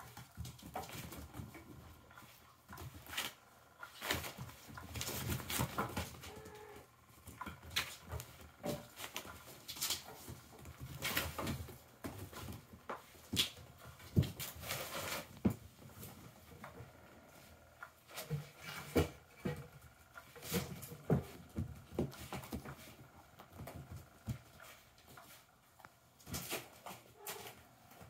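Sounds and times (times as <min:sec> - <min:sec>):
kittens thumping and scampering: 0:00.0 - 0:28.0.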